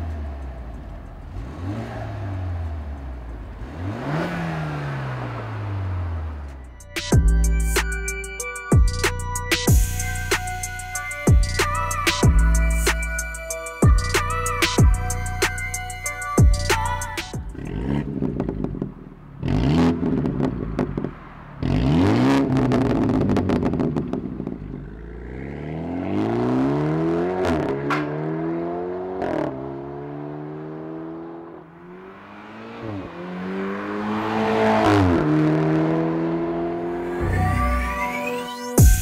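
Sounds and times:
car engine revving: 0.0s - 7.6s, 16.6s - 38.1s
car accelerating through gears: 0.4s - 6.5s, 17.6s - 37.5s
exhaust crackling pops: 18.1s - 19.1s, 22.5s - 24.7s.

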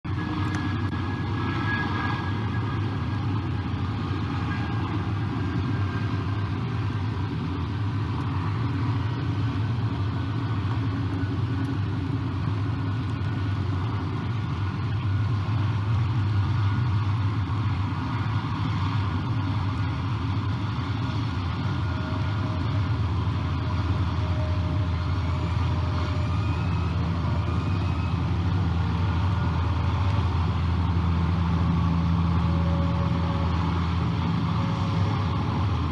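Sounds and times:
distant motor vehicles rumbling: 0.0s - 35.9s
faint rising whistles: 0.2s - 6.5s, 21.2s - 35.8s.

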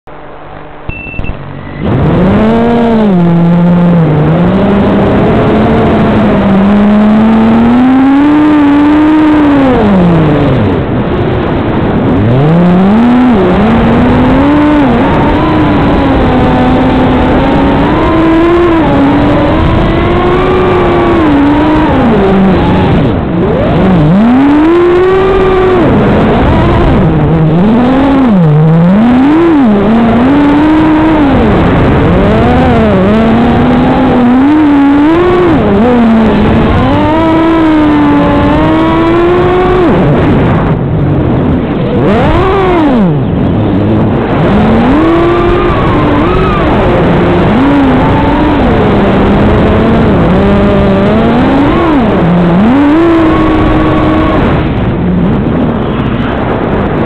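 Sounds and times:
quadcopter motors whining: 12.4s - 40.2s.

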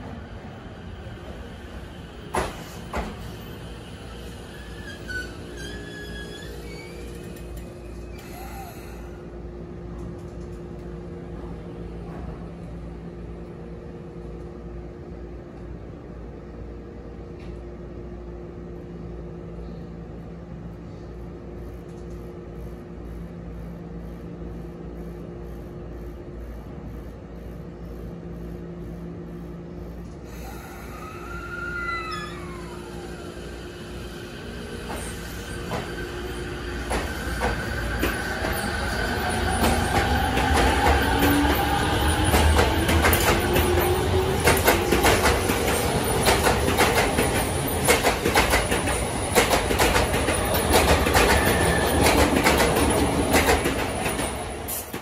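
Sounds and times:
train equipment hum: 0.0s - 55.0s.

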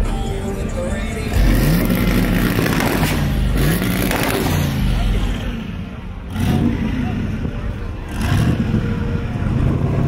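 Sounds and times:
pickup truck engine running: 0.0s - 10.0s.

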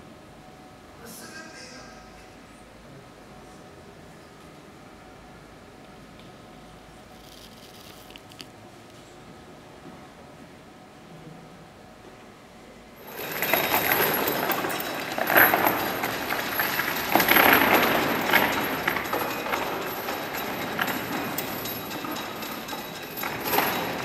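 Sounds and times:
steel chains rattling: 7.2s - 8.3s, 13.0s - 24.0s.

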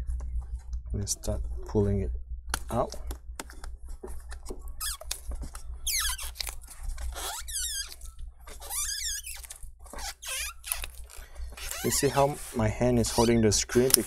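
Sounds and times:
adhesive tape squeaking: 4.7s - 12.4s, 13.0s - 14.0s.

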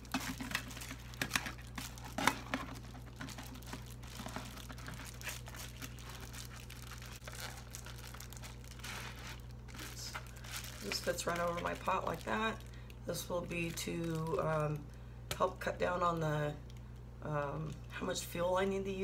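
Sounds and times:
foil insulation crinkling: 0.0s - 14.9s.

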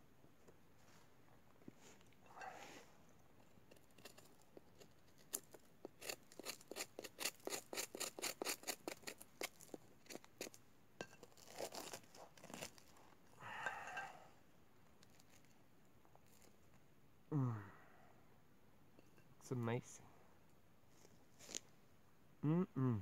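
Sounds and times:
bread crust crackling: 3.6s - 13.1s
knife scraping bread crust: 3.7s - 13.0s.

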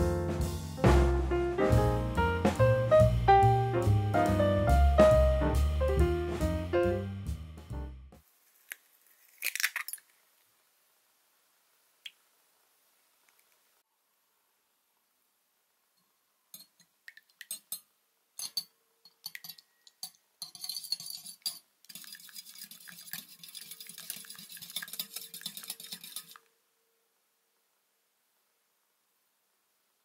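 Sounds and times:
whisk clinking against bowl: 17.4s - 26.4s
whisk tapping and stirring: 18.4s - 26.4s.

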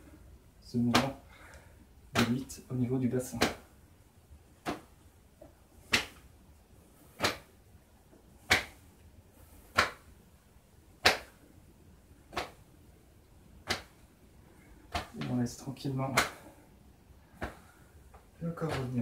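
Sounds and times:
hands slapping body: 0.8s - 1.2s, 2.1s - 2.5s, 3.2s - 3.7s, 4.6s - 6.3s, 7.0s - 7.6s, 8.4s - 10.1s, 11.0s - 11.4s, 12.3s - 12.7s, 13.6s - 14.0s, 14.8s - 16.6s, 17.3s - 19.0s.

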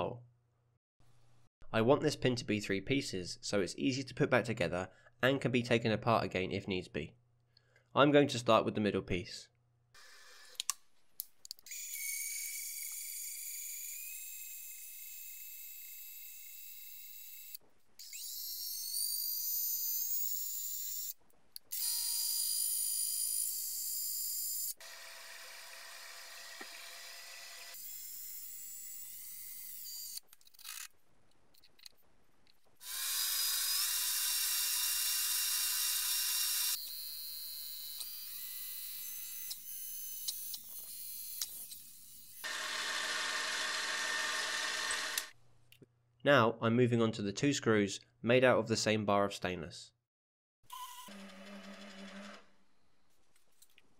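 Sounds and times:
metal lathe cutting steel: 42.5s - 45.3s.

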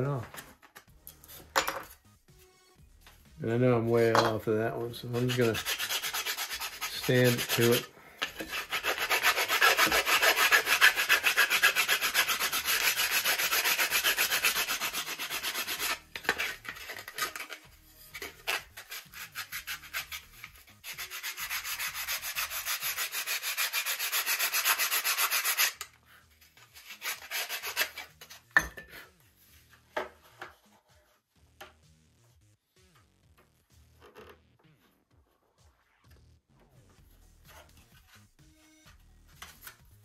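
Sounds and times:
sanding stick rubbing wood: 5.0s - 17.6s, 18.2s - 25.8s, 26.8s - 28.1s.

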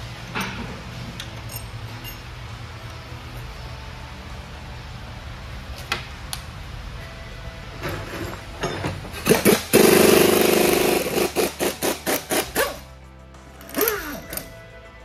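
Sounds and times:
pneumatic impact wrench rattling: 9.1s - 12.9s, 13.6s - 14.5s.

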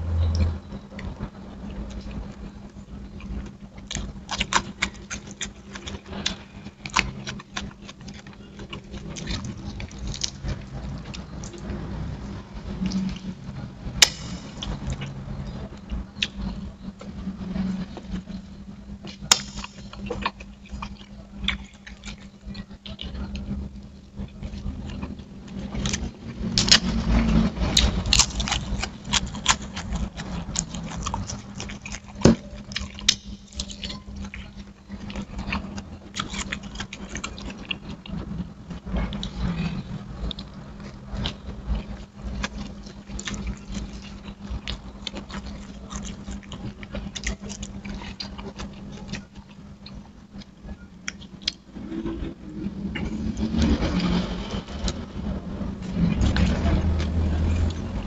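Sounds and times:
low steady hum: 0.0s - 58.0s
man chewing and lip smacking: 3.1s - 11.9s, 14.0s - 26.9s, 27.7s - 39.5s, 40.1s - 51.9s.

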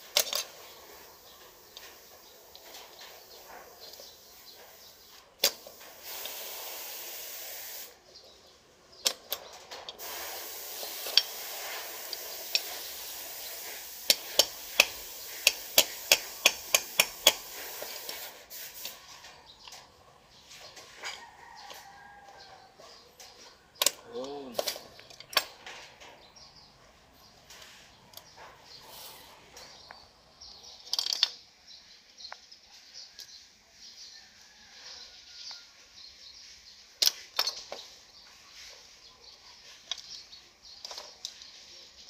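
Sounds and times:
steady hiss: 0.0s - 8.1s, 9.3s - 19.4s
rooster crowing: 21.0s - 22.8s, 34.2s - 35.8s.

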